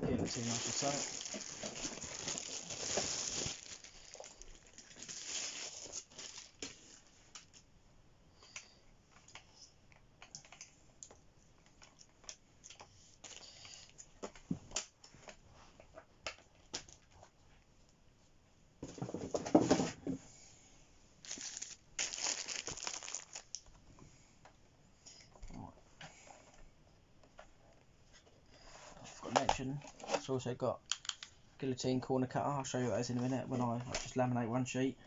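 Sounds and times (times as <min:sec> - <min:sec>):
plastic bag crinkling: 0:00.2 - 0:07.0, 0:21.2 - 0:23.7.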